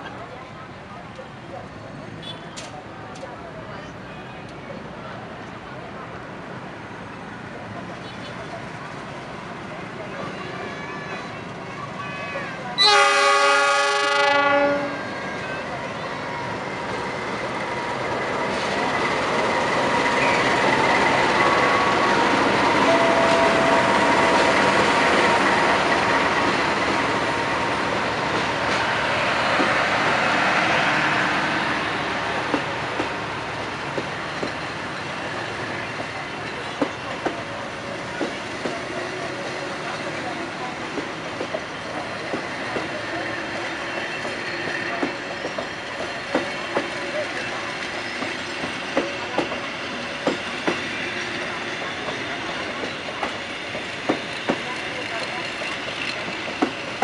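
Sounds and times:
train rumbling past: 4.9s - 57.0s
wheels clacking over rail joints: 32.3s - 57.0s.

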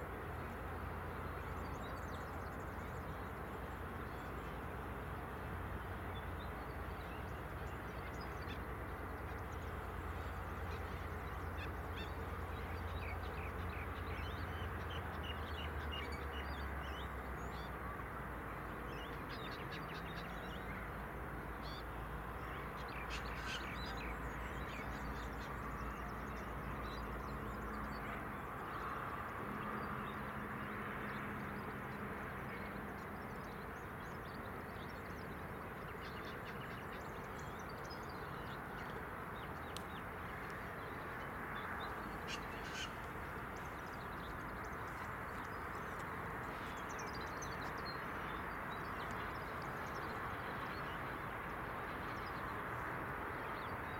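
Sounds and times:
birds calling: 39.8s - 50.2s.

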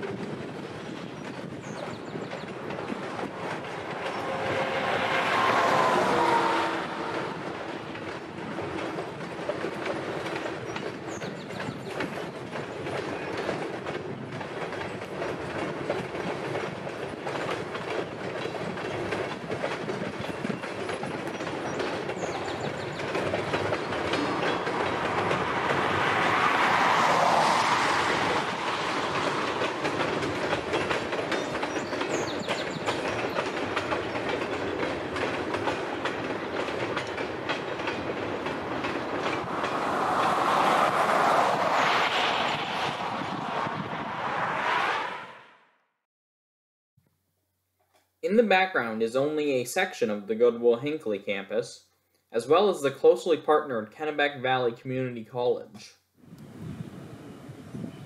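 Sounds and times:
train wheels clattering over rails: 0.0s - 44.0s.

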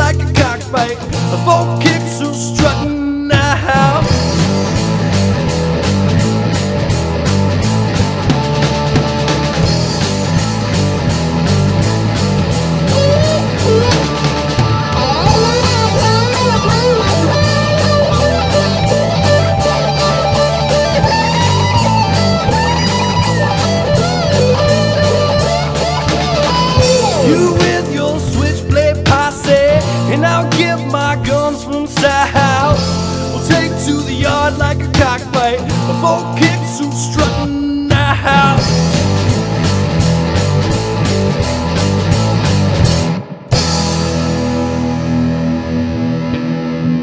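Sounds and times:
lead guitar bending notes: 0.0s - 47.0s
rock band playing: 0.0s - 47.0s.

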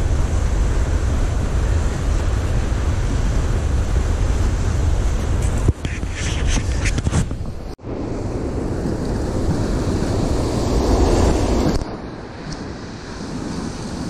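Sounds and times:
ocean surf breaking: 0.0s - 14.0s
wind buffeting microphone: 0.0s - 14.0s.

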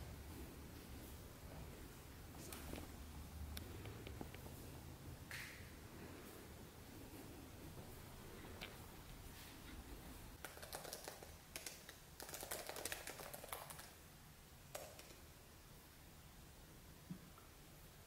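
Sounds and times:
laptop keyboard typing: 10.4s - 14.0s, 14.7s - 15.2s.

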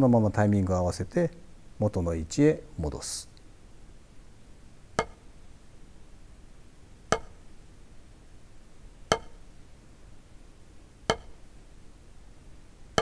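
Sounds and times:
drumstick striking a practice pad: 5.0s - 5.3s, 7.1s - 7.5s, 9.1s - 9.5s, 11.0s - 11.4s.

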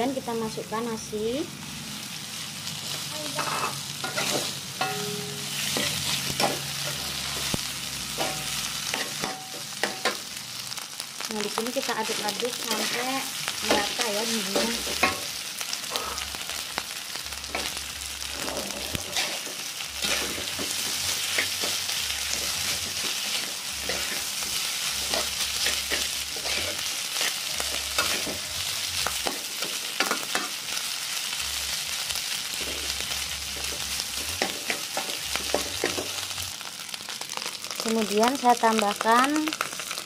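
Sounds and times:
rice sizzling in a wok: 0.0s - 40.0s
metal spatula scraping a pan: 3.4s - 7.5s, 17.5s - 28.4s.

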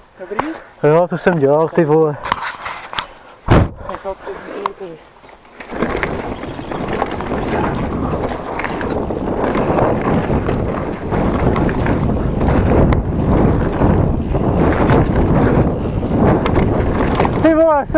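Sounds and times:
tyres rumbling over dirt: 5.3s - 17.9s
wind buffeting microphone: 5.7s - 17.9s.

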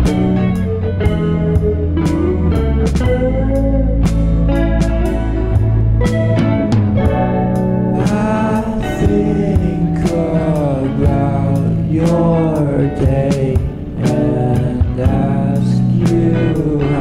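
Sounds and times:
plucked guitar: 0.0s - 17.0s
person singing: 7.8s - 17.0s.

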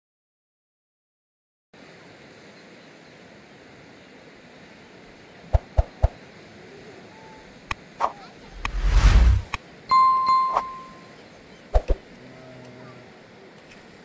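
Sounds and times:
outdoor rushing noise: 5.5s - 6.2s, 7.9s - 9.6s.

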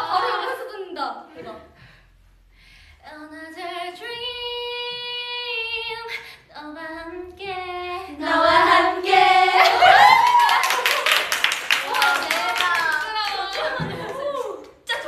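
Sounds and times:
woman singing a cappella: 3.0s - 8.5s.

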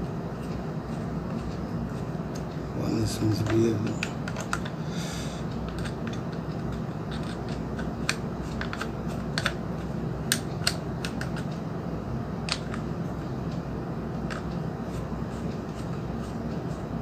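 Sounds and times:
steady low hum: 0.0s - 17.0s
screwdriver clicking and scraping: 5.7s - 9.6s.

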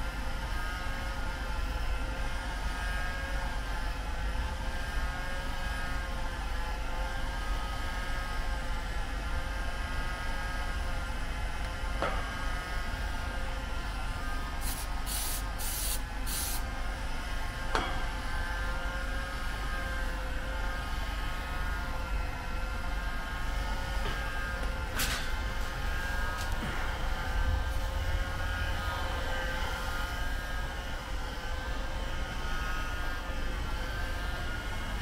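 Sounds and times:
machine drone with whine: 0.0s - 35.0s
short spray hisses: 14.6s - 16.6s.

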